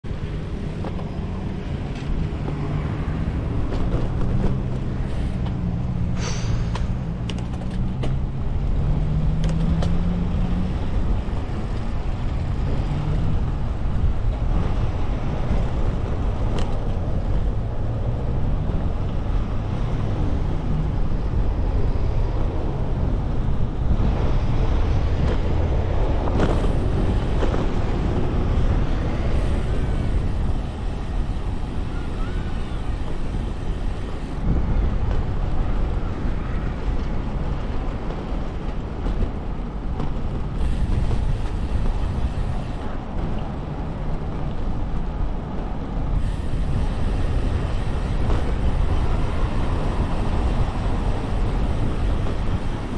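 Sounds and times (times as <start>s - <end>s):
bicycle rolling rumble: 0.0s - 52.9s
road traffic passing: 0.0s - 52.9s
vehicle engine hum: 0.0s - 52.9s.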